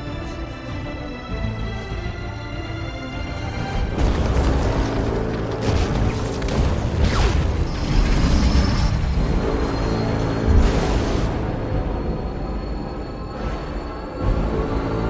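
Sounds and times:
film score music: 0.0s - 15.0s
rumbling crashing destruction: 3.6s - 11.7s.

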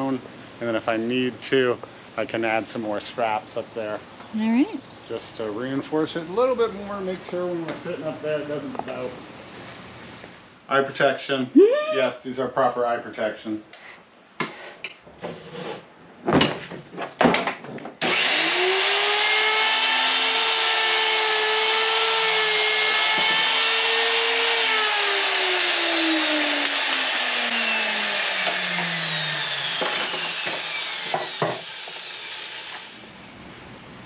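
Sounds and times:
miter saw motor whine: 18.0s - 33.1s
saw blade spinning down: 18.0s - 33.1s.

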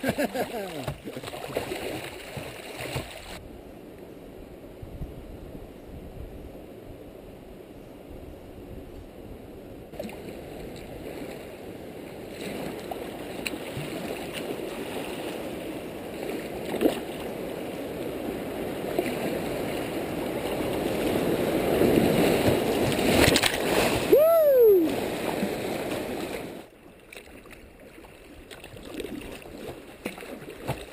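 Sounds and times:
rushing creek water: 0.0s - 3.4s, 9.9s - 30.9s.

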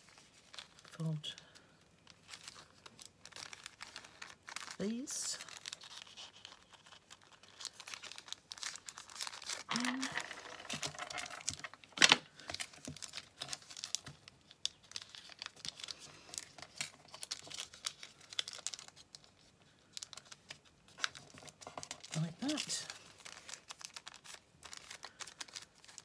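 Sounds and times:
paper crinkling and rustling: 0.0s - 26.0s
sharp paper crackle: 0.0s - 26.0s.

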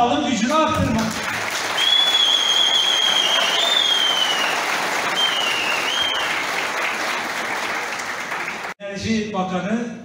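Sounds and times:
audience applauding: 0.5s - 8.8s
high whistle: 1.7s - 6.4s.

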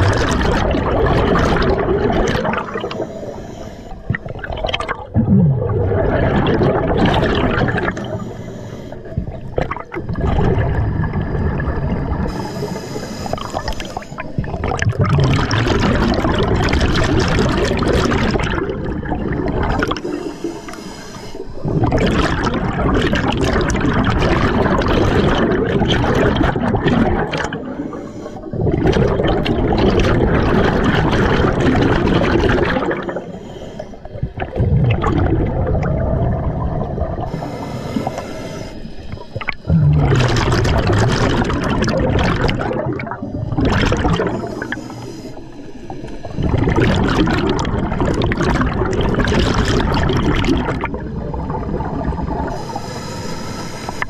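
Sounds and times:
underwater bubbles exhaled: 0.0s - 54.0s
faint regulator hiss: 2.7s - 4.5s, 7.7s - 10.1s, 11.0s - 14.5s, 19.8s - 21.7s, 27.5s - 28.6s, 33.0s - 34.3s, 36.5s - 39.7s, 44.2s - 46.5s, 52.3s - 54.0s.

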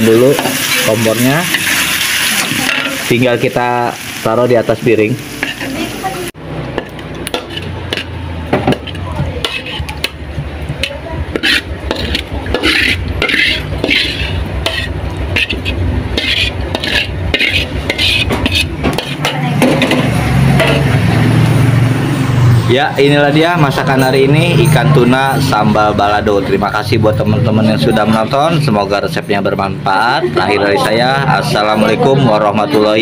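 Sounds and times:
metal spatula scraping wok: 0.0s - 4.2s, 5.3s - 21.6s.

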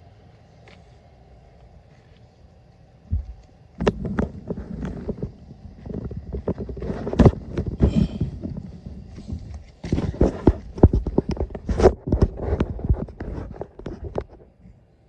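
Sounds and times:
phone handled on asphalt: 3.1s - 14.4s
footsteps: 3.1s - 14.5s.

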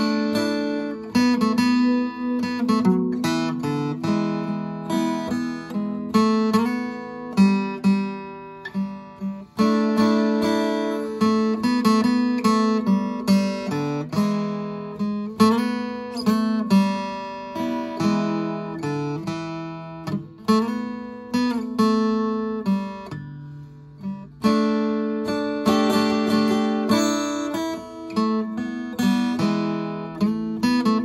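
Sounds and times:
acoustic guitar strumming: 0.0s - 31.0s.

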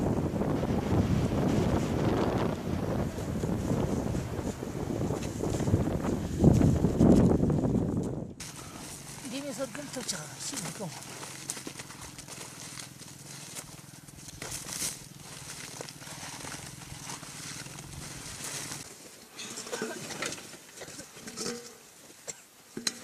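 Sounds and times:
dry dung scraping and crumbling: 8.4s - 21.6s.

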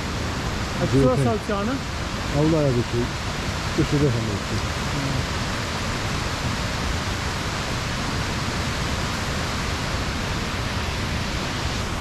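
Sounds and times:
waterfall rushing: 0.0s - 12.0s.

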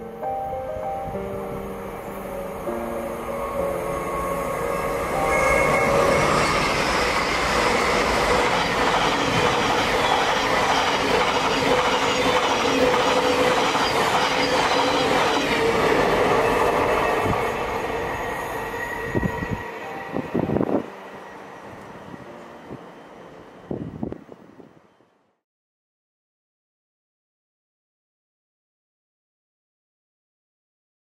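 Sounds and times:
electric train passing: 0.0s - 25.3s
train wheels on rails: 4.6s - 24.4s.

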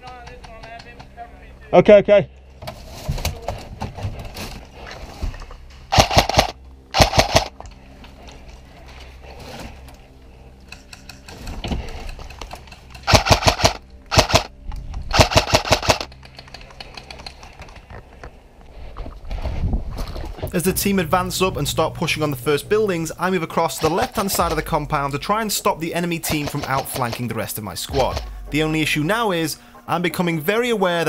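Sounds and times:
airsoft rifle bursts: 5.9s - 7.5s, 13.0s - 14.5s, 15.1s - 17.2s.

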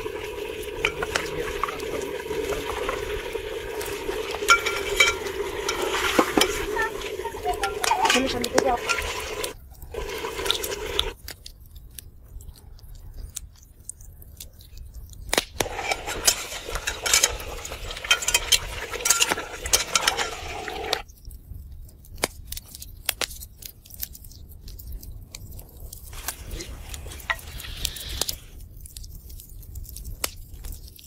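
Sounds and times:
metal ladle clinking on pot: 4.3s - 9.6s, 15.6s - 21.0s.

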